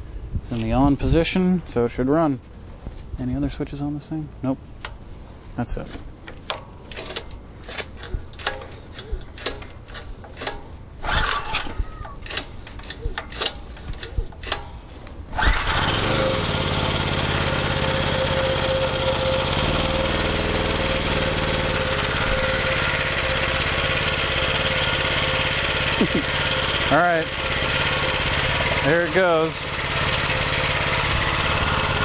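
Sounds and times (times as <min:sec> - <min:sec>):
generator engine running: 0:05.0 - 0:32.0
scattered clicks and knocks: 0:06.3 - 0:11.4.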